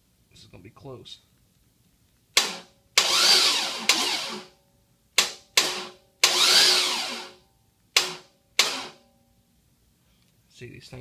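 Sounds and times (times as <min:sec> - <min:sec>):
starter sharp clicks: 0:02.4 - 0:04.4, 0:05.2 - 0:07.3, 0:08.0 - 0:09.0
engine cranking whir: 0:02.4 - 0:04.6, 0:05.6 - 0:07.4, 0:08.0 - 0:09.0.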